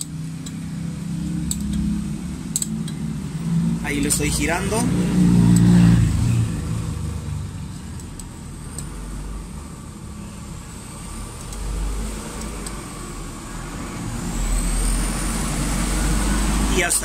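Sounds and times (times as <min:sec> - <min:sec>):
faint metallic wrench ticks: 0:02.5 - 0:03.0, 0:07.9 - 0:09.0, 0:11.3 - 0:11.7.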